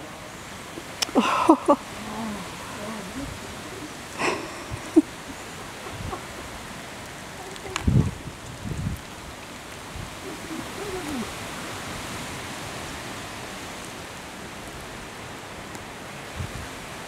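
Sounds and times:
starling flock rushing hiss: 9.1 - 15.0.

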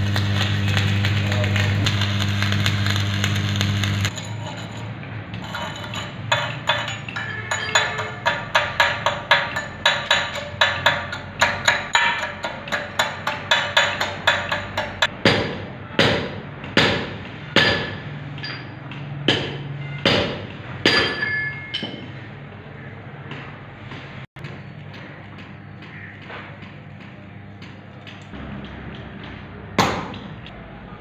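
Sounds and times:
steel rod striking steel: 5.4 - 15.4.

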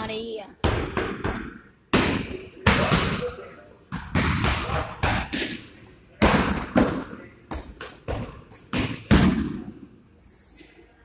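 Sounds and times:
kicks and punches smacking pads: 4.0 - 5.6, 6.2 - 9.7.

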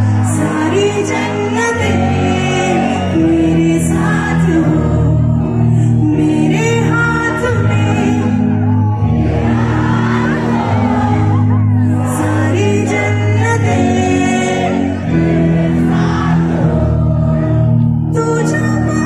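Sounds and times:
woman singing into a microphone: 0.0 - 9.0, 9.9 - 19.0
band playing: 7.6 - 19.0.

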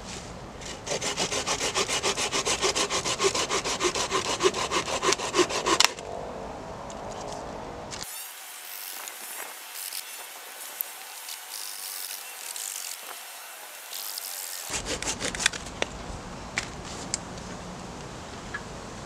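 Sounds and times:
hand saw cutting wood: 0.6 - 6.0, 8.0 - 15.7.

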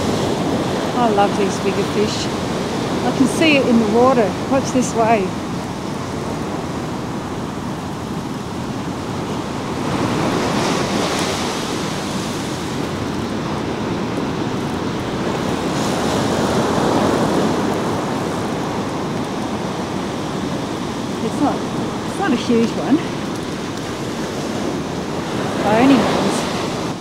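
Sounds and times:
ocean surf breaking on sand: 0.0 - 27.0.

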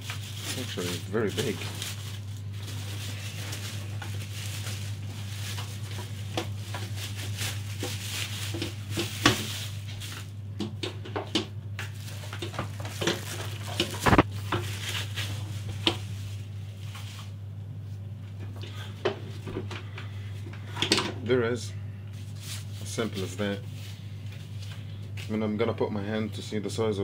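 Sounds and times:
plastic packaging crackling: 0.0 - 10.4, 11.8 - 17.3.

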